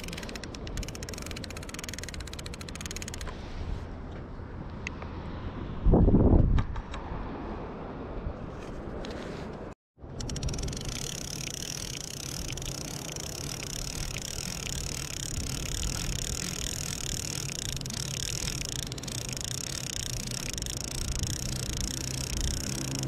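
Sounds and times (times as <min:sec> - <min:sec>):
fishing reel gears whirring: 0:00.0 - 0:03.3, 0:10.1 - 0:23.0.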